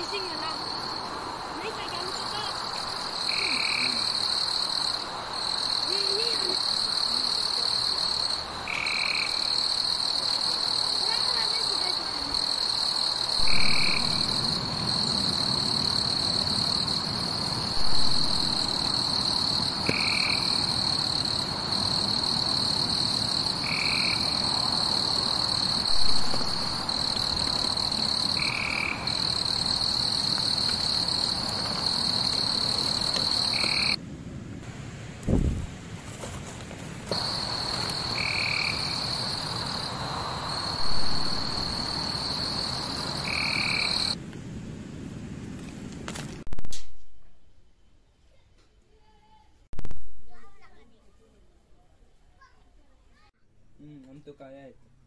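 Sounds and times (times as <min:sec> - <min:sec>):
insects trilling: 0:00.0 - 0:34.0, 0:37.1 - 0:44.2
low insect chirp: 0:00.0 - 0:34.0, 0:37.1 - 0:44.2.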